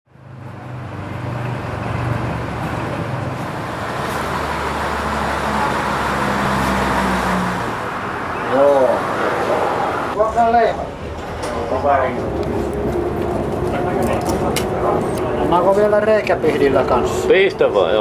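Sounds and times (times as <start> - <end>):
diesel engine idling: 0.6 - 10.1.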